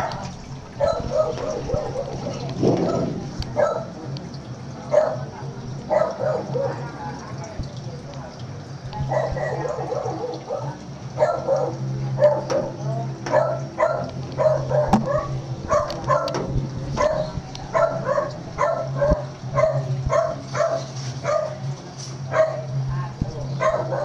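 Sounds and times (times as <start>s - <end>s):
small dog barking: 0.0s - 4.0s, 4.9s - 5.3s, 5.9s - 7.4s, 9.0s - 12.7s, 13.3s - 16.4s, 17.0s - 21.6s, 22.3s - 22.7s, 23.6s - 24.0s
steady low hum: 0.0s - 24.0s.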